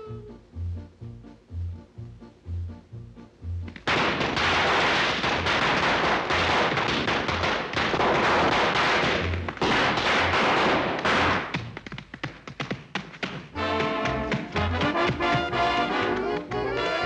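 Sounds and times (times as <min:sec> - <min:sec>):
firecrackers crackling: 0:03.7 - 0:11.7.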